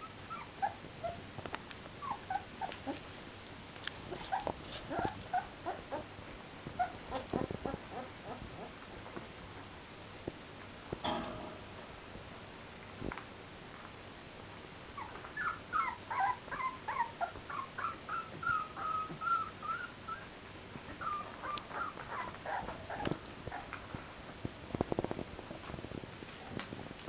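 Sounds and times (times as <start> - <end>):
puppies whining: 0.0 - 1.2, 2.0 - 3.0, 4.1 - 6.1, 6.8 - 8.8, 15.0 - 20.3, 20.9 - 23.8.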